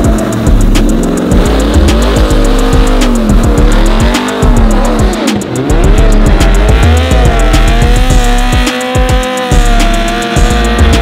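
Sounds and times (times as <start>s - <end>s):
engines revving hard: 0.0s - 11.0s
music with steady beat: 0.0s - 11.0s.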